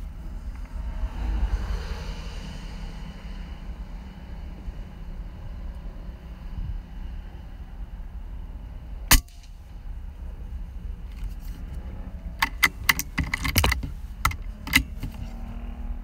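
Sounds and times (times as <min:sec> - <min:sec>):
air rifle shot: 0:09.1 - 0:09.6
metallic clicks of rifle handling: 0:12.4 - 0:15.3.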